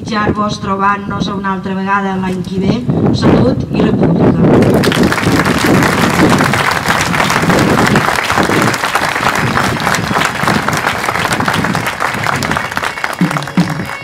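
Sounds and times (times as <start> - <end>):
crowd applauding: 4.6 - 14.0
bagpipes playing: 12.6 - 14.0.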